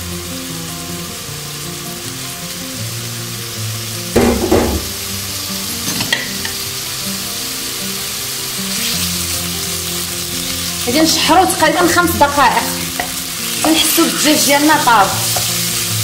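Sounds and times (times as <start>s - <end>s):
chicken sizzling in frying pan: 0.0s - 16.0s
utensil clatter in pan: 5.8s - 6.6s.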